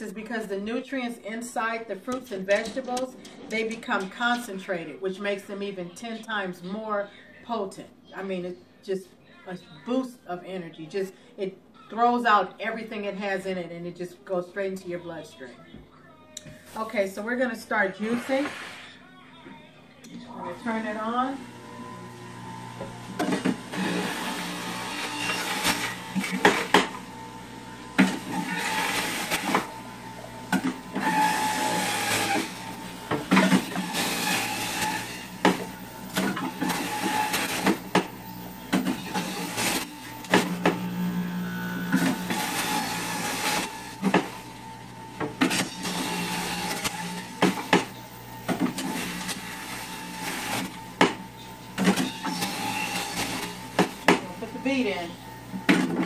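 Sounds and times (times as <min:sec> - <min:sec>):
juicer motor running: 0:20.1 - 0:56.0
knocks and grinding in juicer: 0:20.6 - 0:54.7, 0:55.4 - 0:56.0.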